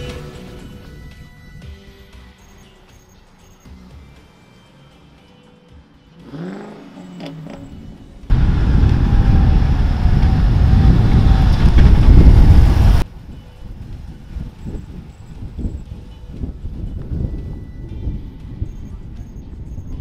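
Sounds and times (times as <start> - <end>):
car engine: 6.2 - 13.0
loud low rumble: 8.3 - 13.0.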